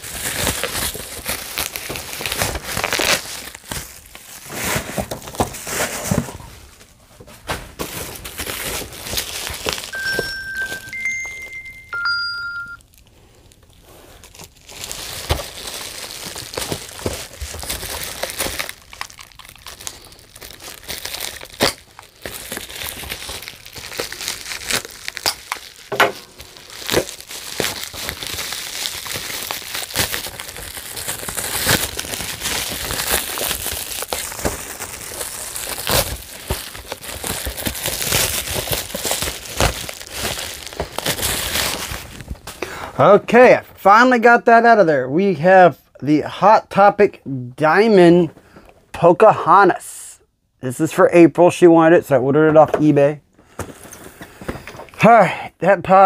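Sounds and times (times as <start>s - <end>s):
plastic packaging crinkling: 0.0s - 42.6s.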